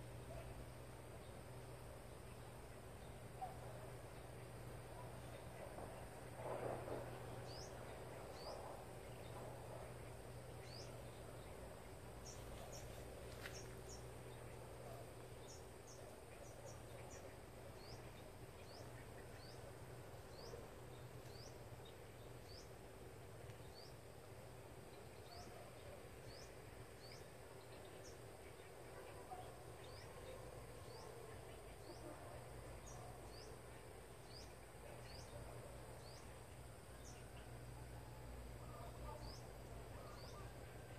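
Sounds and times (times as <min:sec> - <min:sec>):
faint low hum: 0:00.0 - 0:40.9
bird chirping: 0:07.2 - 0:22.8, 0:24.9 - 0:37.9, 0:38.6 - 0:40.9.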